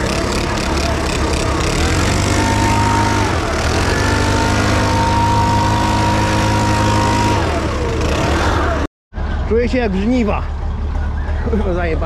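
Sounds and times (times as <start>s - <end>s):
leaf blower motor whine: 0.0s - 8.9s.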